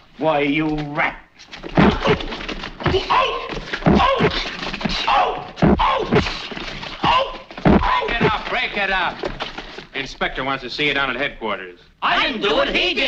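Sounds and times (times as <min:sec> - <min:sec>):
slaps and thudding hits: 0:01.6 - 0:09.8.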